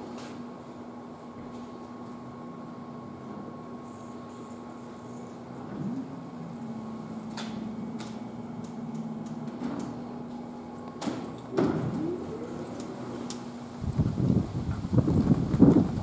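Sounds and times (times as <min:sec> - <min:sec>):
electrical hum: 0:00.0 - 0:16.0
sliding door mechanism clicks: 0:10.8 - 0:13.5.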